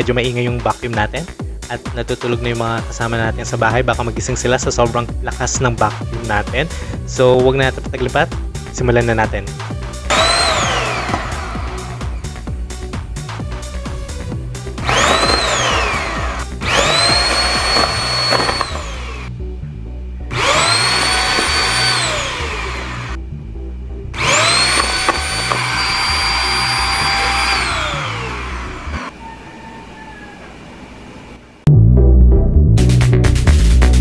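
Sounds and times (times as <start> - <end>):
handheld vacuum motor whining: 10.1 - 12.2, 14.8 - 19.3, 20.3 - 23.2, 24.2 - 29.2.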